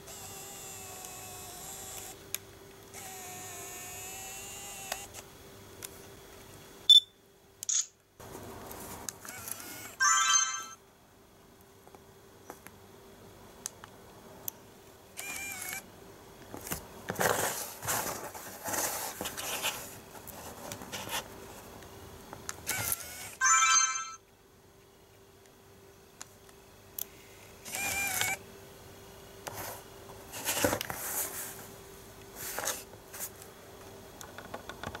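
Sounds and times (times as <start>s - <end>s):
zoom lens motor whirr: 0.0s - 2.2s, 2.9s - 5.2s, 9.2s - 10.0s, 15.2s - 15.9s, 22.6s - 23.4s, 27.6s - 28.4s
short electronic beeps: 6.9s - 7.1s.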